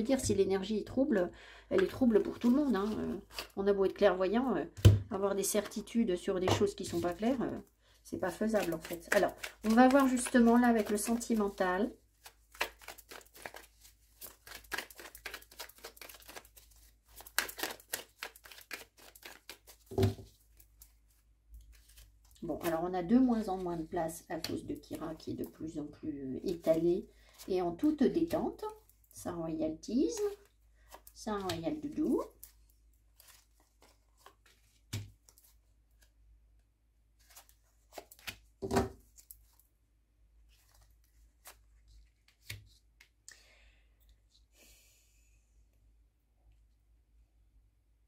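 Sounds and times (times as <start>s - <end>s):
cards being shuffled: 1.8s - 3.6s, 8.3s - 22.7s, 30.1s - 36.1s, 37.2s - 39.7s, 40.6s - 43.2s.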